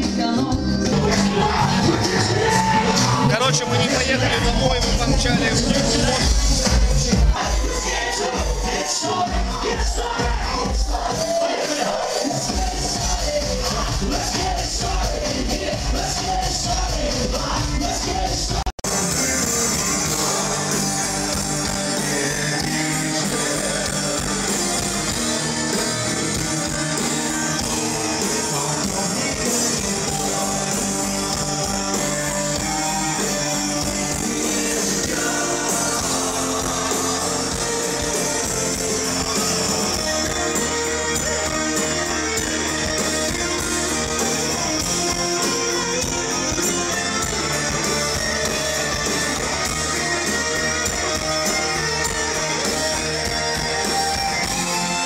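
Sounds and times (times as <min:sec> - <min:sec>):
person singing: 0:05.3 - 0:55.0
electric guitar: 0:18.5 - 0:55.0.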